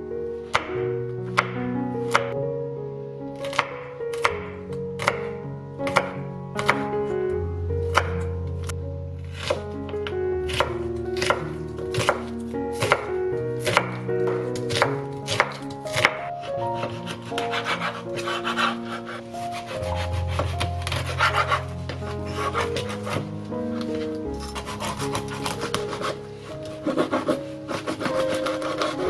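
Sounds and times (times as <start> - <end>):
background music: 0.0 - 29.0
knife chopping on cutting board: 10.5 - 14.0, 14.7 - 16.2, 22.3 - 23.2, 26.8 - 29.0
knife sawing through fish: 16.8 - 21.7, 22.3 - 23.2, 26.8 - 29.0.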